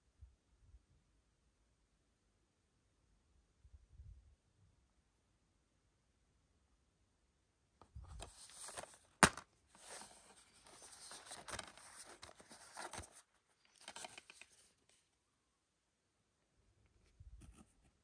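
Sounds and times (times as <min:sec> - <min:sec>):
plastic case rustling in hands: 0:07.8 - 0:15.0
plastic case snapping open: 0:08.7 - 0:09.5.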